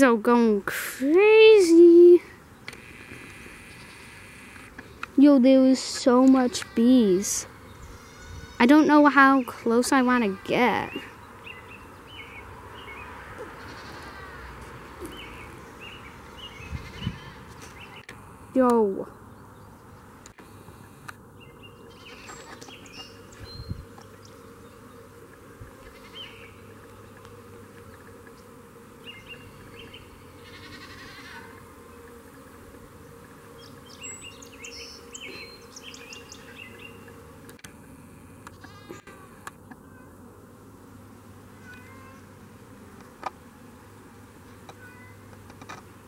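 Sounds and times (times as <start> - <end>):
bees buzzing: 0.0 - 46.0
bird chirps: 33.6 - 37.1.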